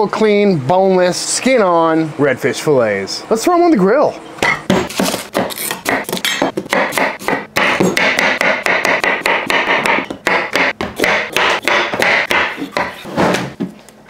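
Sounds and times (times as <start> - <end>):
knife chopping on wooden board: 4.4 - 13.7.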